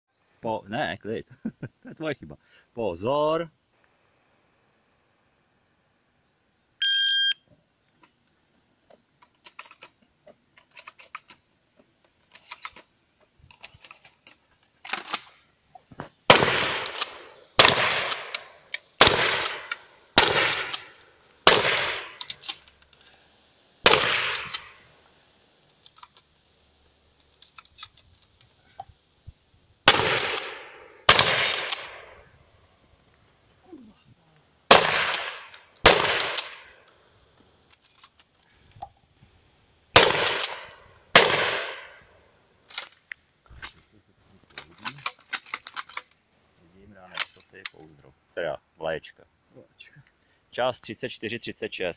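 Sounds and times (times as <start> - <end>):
electronic timer beep: 6.8 - 7.4
shotgun shots: 16.3 - 22.4, 23.8 - 24.8, 29.9 - 32.2, 34.7 - 36.7, 40.0 - 42.0
faint clicks: 49.9 - 50.4.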